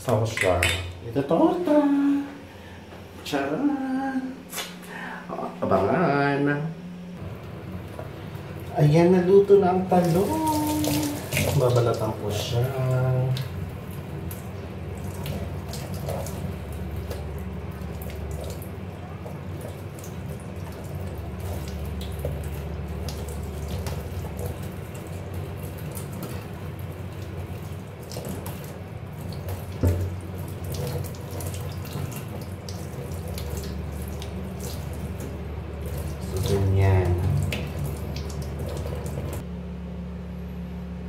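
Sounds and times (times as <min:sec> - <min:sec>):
tap water running into sink: 0:07.2 - 0:39.4.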